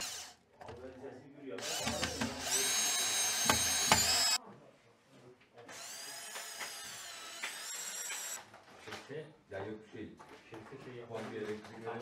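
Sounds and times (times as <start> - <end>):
cordless drill motor whine: 0.0 - 0.3, 1.6 - 4.4, 5.7 - 8.4.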